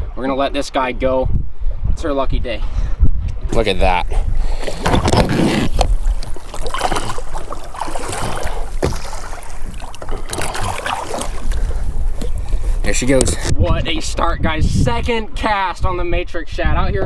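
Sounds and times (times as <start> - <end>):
wind on microphone: 0.0 - 17.0
water splashing against boat: 3.8 - 13.7.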